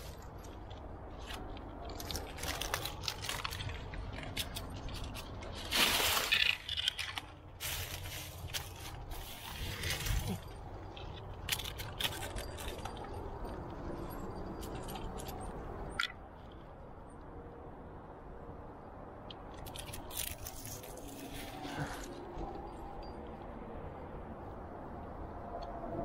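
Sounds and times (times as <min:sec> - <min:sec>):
climbing gear clicks and scrapes: 0:00.0 - 0:16.6, 0:19.4 - 0:23.5.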